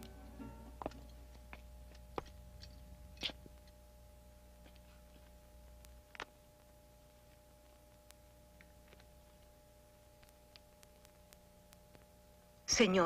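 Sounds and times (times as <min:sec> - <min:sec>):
faint hum and hiss: 0:00.0 - 0:13.0.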